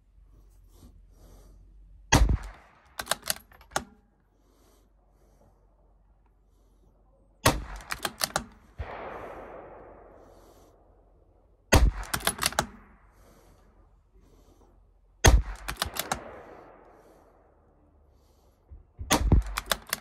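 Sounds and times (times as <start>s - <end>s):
rifle shots: 2.1s - 3.9s, 7.4s - 13.4s, 15.2s - 17.6s, 19.1s - 20.0s
rifle bolt clicking: 2.2s - 4.1s, 7.5s - 9.0s, 11.8s - 13.0s, 15.3s - 16.8s, 19.1s - 20.0s.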